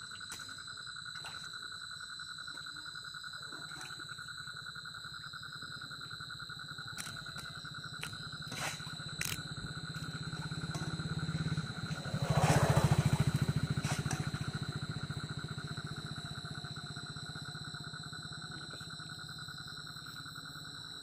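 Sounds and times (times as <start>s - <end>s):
low pulsing hum: 0.0s - 21.0s
person wading through water: 3.5s - 4.3s, 7.0s - 12.6s.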